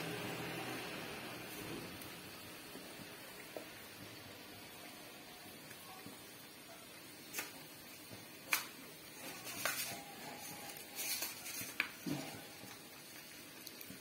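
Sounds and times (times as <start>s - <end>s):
sesame seeds rustling in a bowl: 8.5s - 14.0s.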